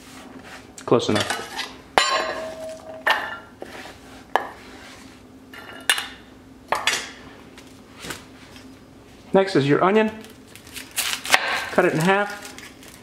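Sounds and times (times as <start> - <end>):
celery clattering into metal bowl: 1.1 - 3.4.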